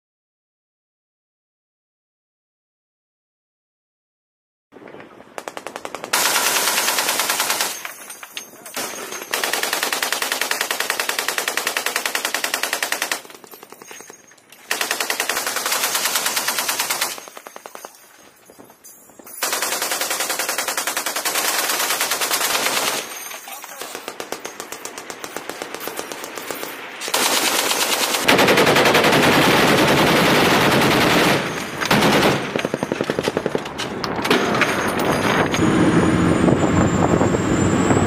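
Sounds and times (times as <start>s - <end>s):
machine gun firing bursts: 5.4s - 7.9s, 8.8s - 18.0s, 19.4s - 34.6s.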